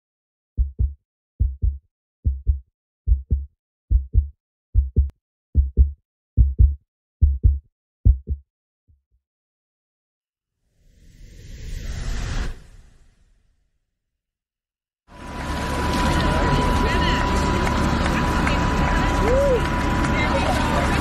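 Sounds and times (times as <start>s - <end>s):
heartbeat thumps: 0.6s - 8.5s.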